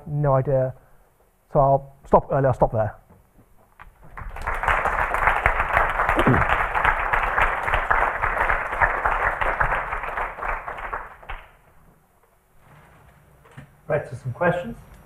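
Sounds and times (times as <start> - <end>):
audience applauding: 4.1 - 11.6.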